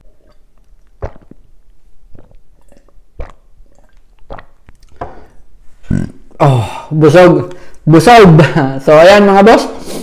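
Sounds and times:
man gulping water: 0.0 - 6.4.

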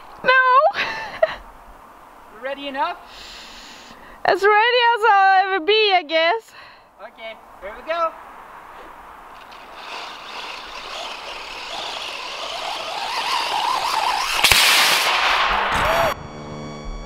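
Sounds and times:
tyres on sand: 8.7 - 15.0
rc truck electric motor whining: 9.4 - 15.1
rocket motor hissing rush: 9.4 - 16.2
rocket motor igniting with crack: 9.4 - 16.2.

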